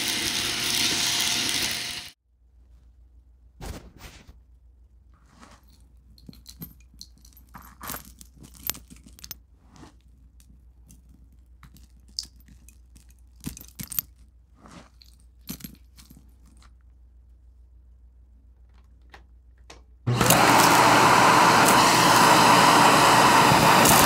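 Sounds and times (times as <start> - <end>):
debris rustling on carpet: 5.0 - 17.0.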